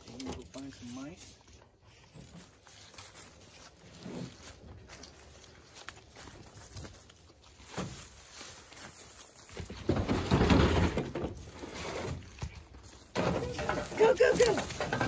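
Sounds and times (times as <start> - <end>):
footsteps in dry leaves: 0.6 - 9.9
plastic cooler scraping across truck bed: 9.8 - 12.3.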